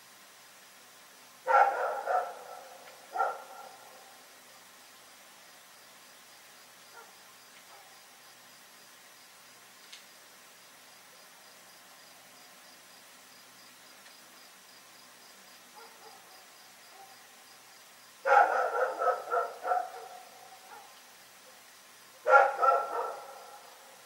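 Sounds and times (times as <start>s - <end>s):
crickets chirring: 0.4s - 24.0s
dog barking: 1.5s - 4.1s, 6.9s - 8.0s, 15.8s - 17.2s, 18.2s - 21.0s, 22.2s - 23.9s.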